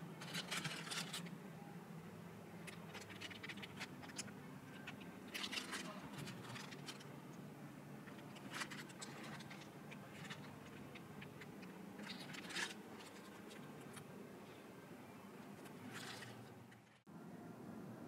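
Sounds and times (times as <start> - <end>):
steady low hum: 0.0 - 18.0
packaging clicks and rustles: 2.6 - 7.1, 8.0 - 14.1, 15.5 - 17.0.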